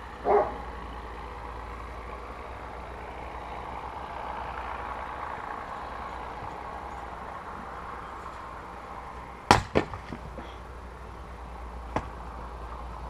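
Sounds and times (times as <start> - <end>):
maul striking log: 9.5 - 10.5, 11.9 - 12.2
split wood clattering: 9.5 - 10.6.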